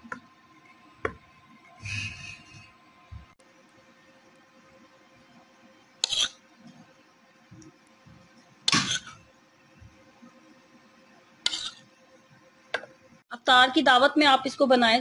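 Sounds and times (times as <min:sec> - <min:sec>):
faint steady hum: 0:00.0 - 0:15.0
metal spoon scraping glass dish: 0:06.0 - 0:06.4, 0:11.5 - 0:11.9.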